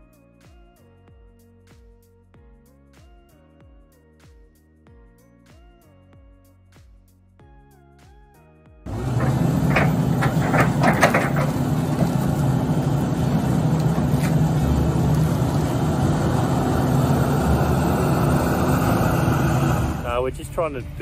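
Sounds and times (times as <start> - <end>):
knocks and clanks of logs: 8.9 - 16.2
excavator diesel engine running: 8.9 - 20.4.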